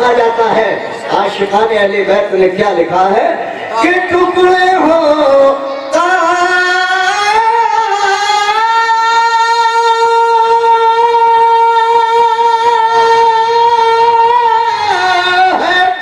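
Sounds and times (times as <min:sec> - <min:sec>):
elderly man singing a long note: 0:05.2 - 0:16.0.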